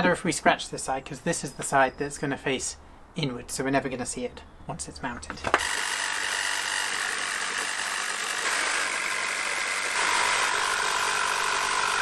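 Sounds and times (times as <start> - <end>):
jigsaw cutting metal sheet: 5.5 - 12.0.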